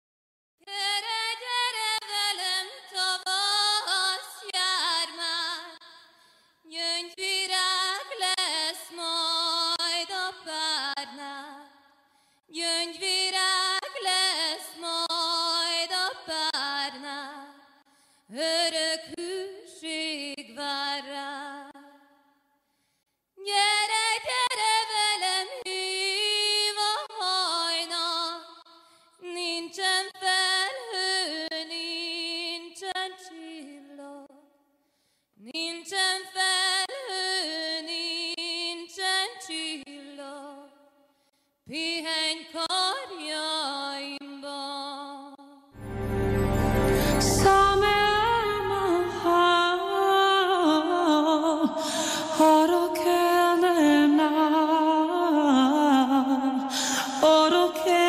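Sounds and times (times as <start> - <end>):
woman singing unaccompanied: 0.6 - 5.8, 6.7 - 11.7, 12.5 - 17.6, 29.2 - 34.4, 47.2 - 58.0.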